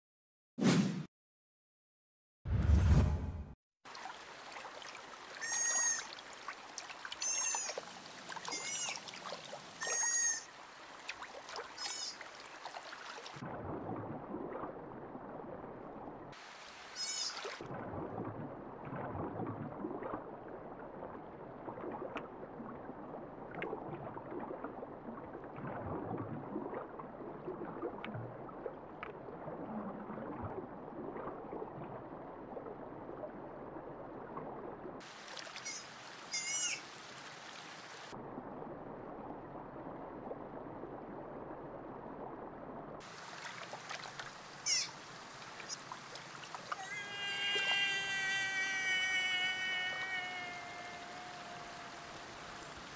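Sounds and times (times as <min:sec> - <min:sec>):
water splashing: 0:03.9 - 0:32.7, 0:35.0 - 0:38.2, 0:43.0 - 0:52.9.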